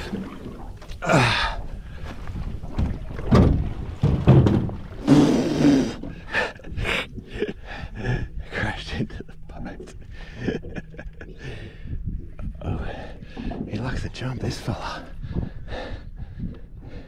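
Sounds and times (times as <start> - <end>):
heavy thuds against boat: 2.7 - 5.1.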